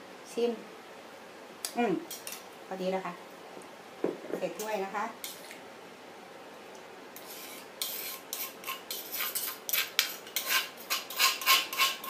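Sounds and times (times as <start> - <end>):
spoon scraping clay mortar: 7.2 - 12.0.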